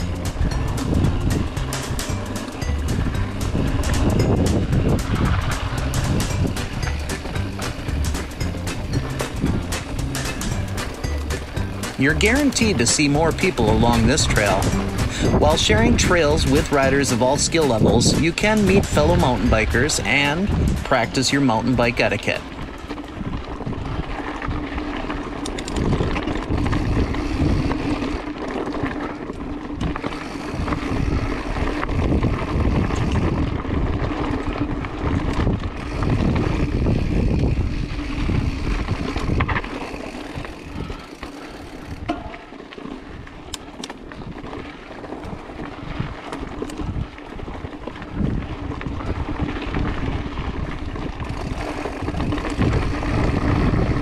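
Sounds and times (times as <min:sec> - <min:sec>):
bike tyre rumble and rattle: 0:00.0 - 0:54.0
wind buffeting microphone: 0:00.0 - 0:54.0.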